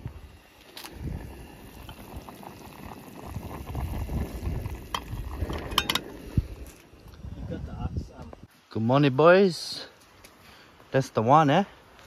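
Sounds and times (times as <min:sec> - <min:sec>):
pot of food bubbling: 0:00.0 - 0:07.2.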